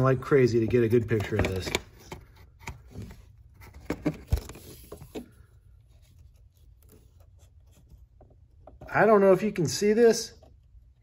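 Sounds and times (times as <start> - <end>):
handling clicks and rustles: 0.0 - 5.4.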